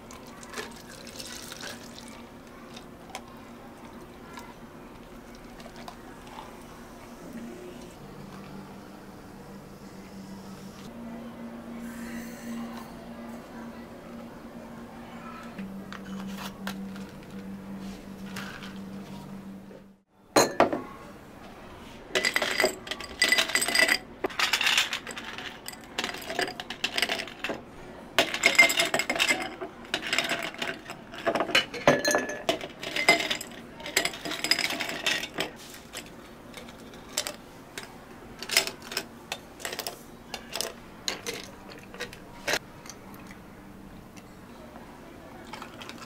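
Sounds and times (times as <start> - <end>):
clinking against glass: 20.4 - 20.8, 28.2 - 35.4.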